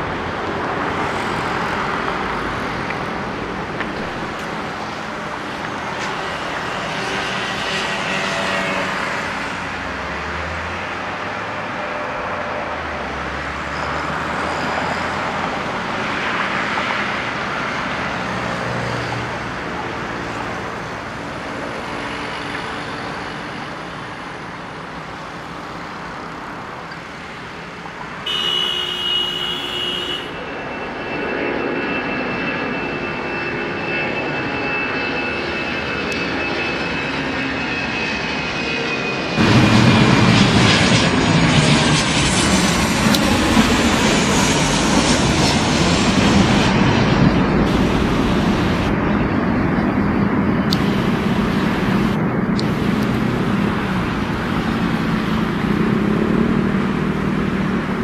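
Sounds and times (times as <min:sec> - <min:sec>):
jet engines roaring: 0:00.0 - 0:58.0
high-pitched tone: 0:50.7 - 0:53.9.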